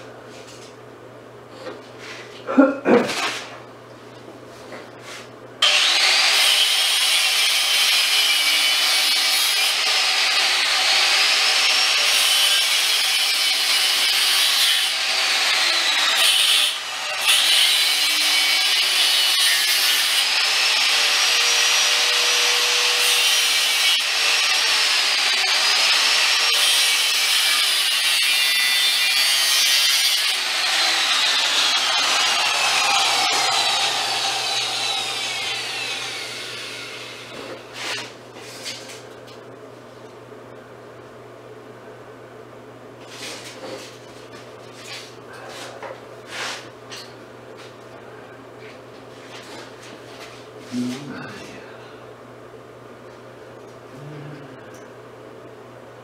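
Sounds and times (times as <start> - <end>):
angle grinder cutting metal mesh: 5.6 - 38.0.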